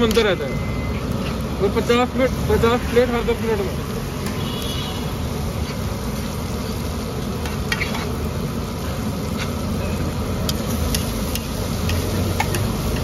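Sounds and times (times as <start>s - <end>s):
curry sizzling on griddle: 0.0s - 13.0s
spatula scraping pan: 7.4s - 8.2s
spatula clicking on pan: 10.4s - 13.0s.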